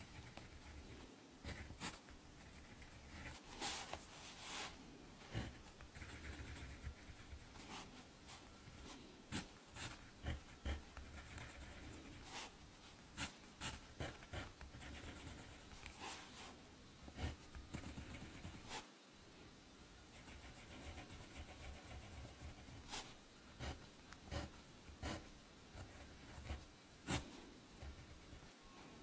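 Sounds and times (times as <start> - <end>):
pen scratching on paper: 0.0 - 8.0, 8.7 - 12.6, 13.2 - 18.8, 20.1 - 28.4.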